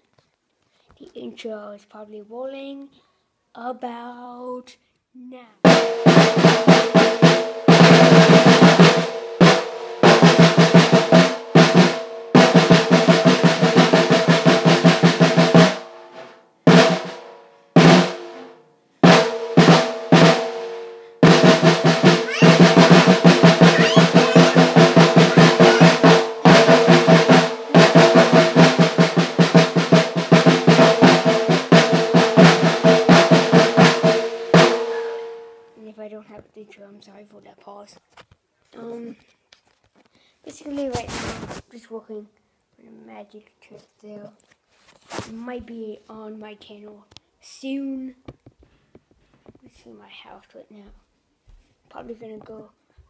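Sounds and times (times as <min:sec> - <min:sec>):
snare drum rolls: 0:05.7 - 0:35.5.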